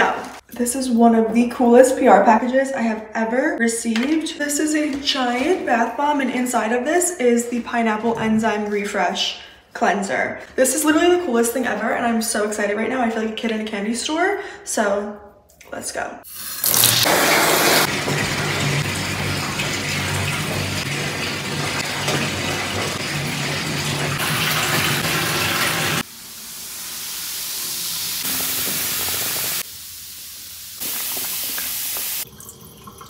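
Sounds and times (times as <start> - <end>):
faucet water filling bathtub: 16.2 - 33.0.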